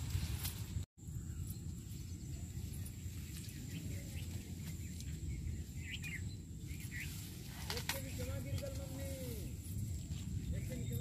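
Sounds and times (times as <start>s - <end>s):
bird chirps: 1.1s - 7.4s.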